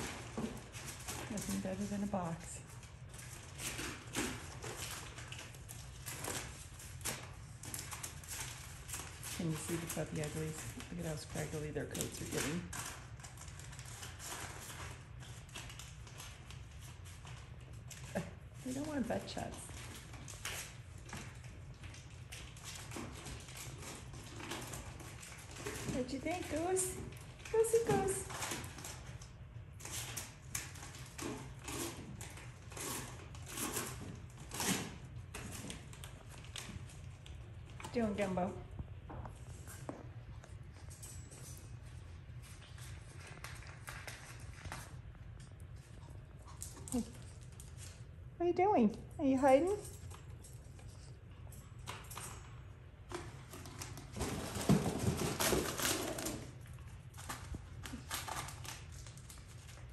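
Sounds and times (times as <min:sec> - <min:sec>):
puppies scuffling: 0:49.4 - 0:59.9.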